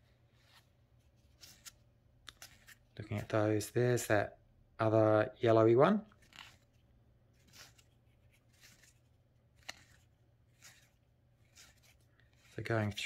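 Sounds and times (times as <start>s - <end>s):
cards rustling: 0.3s - 3.7s, 6.0s - 13.0s.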